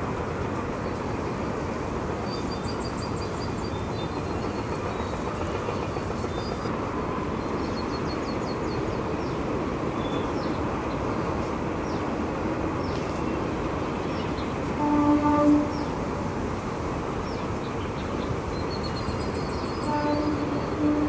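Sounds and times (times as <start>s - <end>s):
birds chirping: 17.2s - 21.0s.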